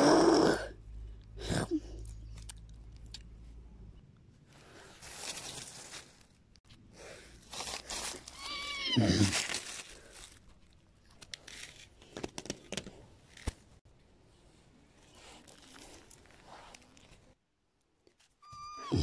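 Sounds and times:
rustling of leaves and plants: 4.4 - 12.1, 13.3 - 17.4
horse whinny: 18.5 - 19.0.

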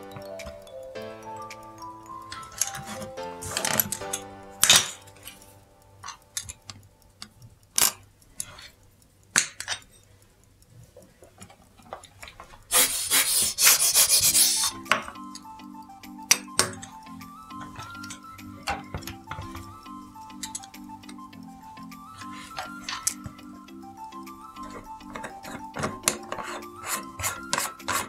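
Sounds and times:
background music: 0.0 - 7.2, 12.8 - 28.0
small metal tools clicking: 1.4 - 5.4, 6.0 - 12.8, 14.5 - 28.0.

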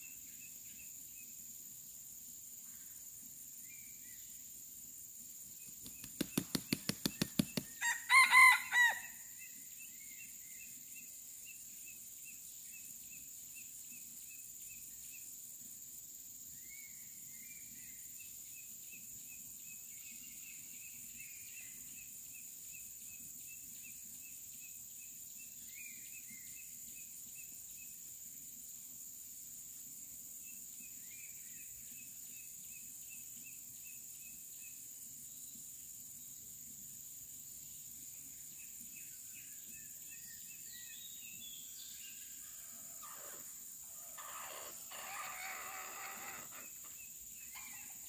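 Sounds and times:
insect chorus buzzing: 0.0 - 48.0
rooster wings beating: 5.9 - 7.8
rooster crowing: 7.8 - 9.2.

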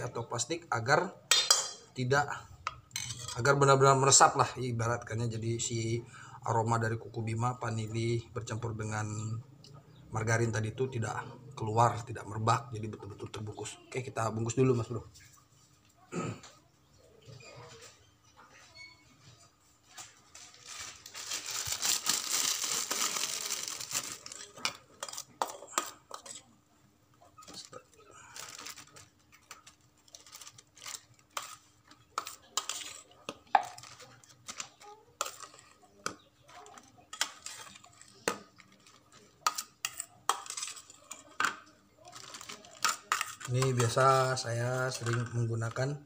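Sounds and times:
metal spoon clinking in steel bowl: 1.3 - 1.9
plastic bag crinkling: 19.8 - 25.4, 27.4 - 35.9, 42.0 - 45.4.

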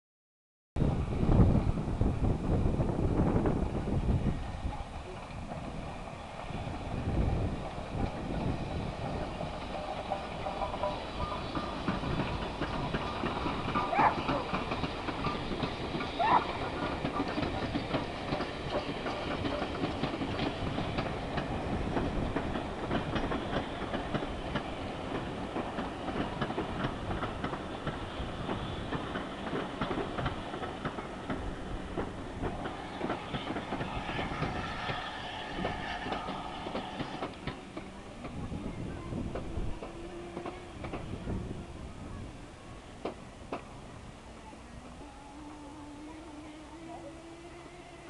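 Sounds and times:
train wheels clattering: 6.4 - 41.2
rising squeals: 32.4 - 38.1.

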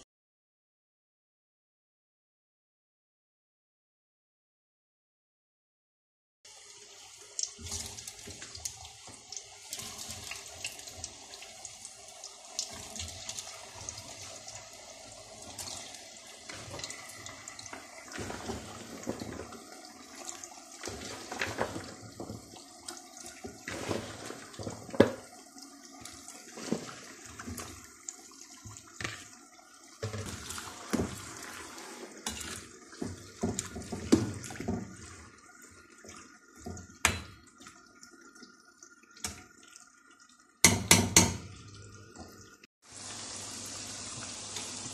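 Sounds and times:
potatoes sizzling in hot oil: 6.5 - 25.3, 30.0 - 35.8, 42.8 - 44.9.

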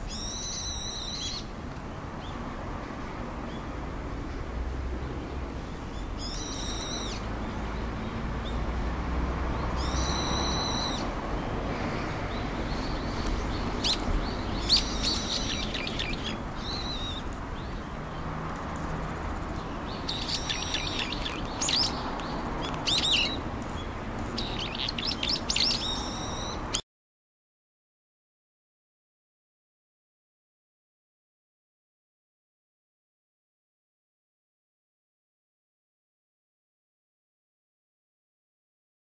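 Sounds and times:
bird sharp chirps: 0.1 - 1.5, 6.0 - 7.3, 9.8 - 11.1, 12.7 - 17.8, 19.9 - 23.4, 24.3 - 26.8
bird shrill ringing calls: 0.1 - 1.5, 6.2 - 7.2, 9.8 - 11.1, 13.8 - 17.3, 19.9 - 22.0, 22.8 - 23.4, 24.4 - 26.8.

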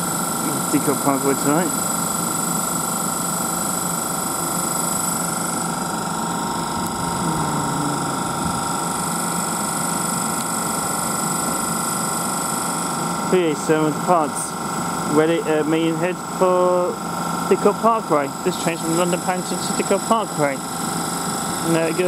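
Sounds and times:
high steady whining tones: 0.0 - 22.0
train equipment humming: 5.5 - 9.5.

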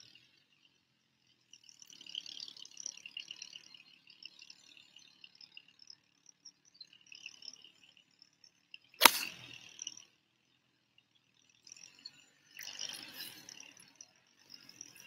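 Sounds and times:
golf club striking ball: 9.0 - 9.4
faint high chirping: 11.4 - 15.0.

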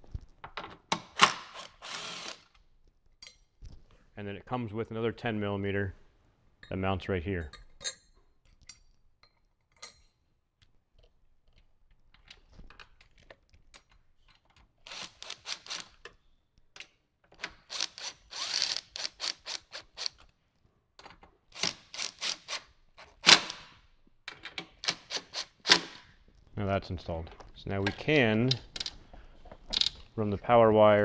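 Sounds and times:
ratchet wrench clicking: 17.7 - 20.2.

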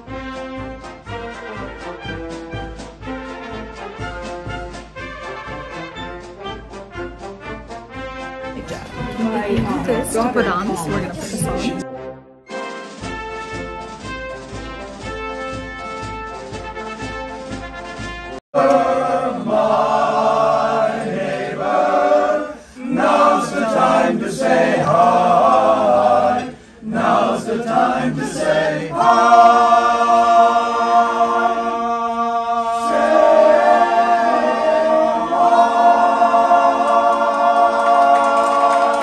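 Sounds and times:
men's a cappella chorus singing: 18.6 - 39.0.

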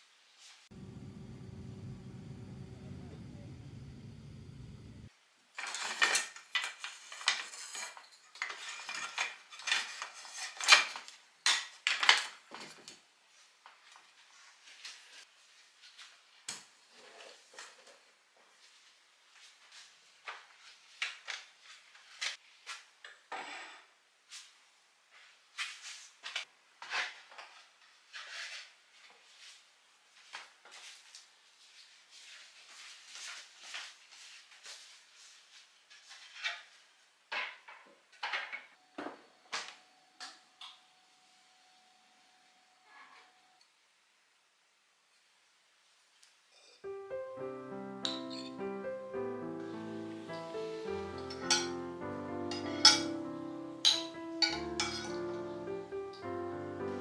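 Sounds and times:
wooden utensils clattering in crock: 5.6 - 12.2, 51.3 - 51.8, 53.9 - 55.4
kitchenware knocking and clattering: 51.2 - 51.8, 52.5 - 53.1, 53.8 - 55.3.

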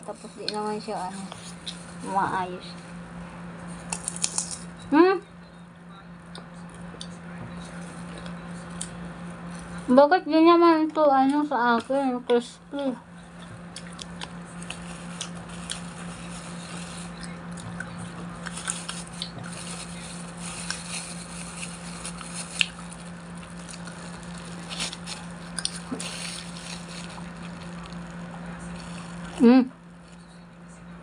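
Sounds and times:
low hum: 0.0 - 31.0
chewing with crunches: 3.8 - 4.7, 6.2 - 9.8, 13.1 - 30.4.

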